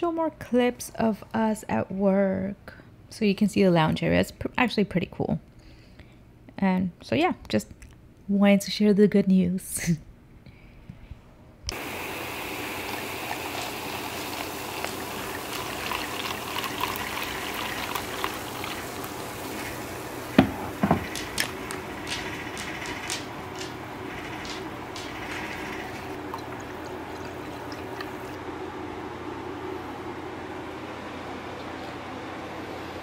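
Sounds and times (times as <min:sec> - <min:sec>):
crackling fizz: 0:11.7 - 0:28.5
liquid pouring into a glass: 0:12.1 - 0:21.2, 0:24.2 - 0:28.4
sharp knocks: 0:20.4 - 0:25.4.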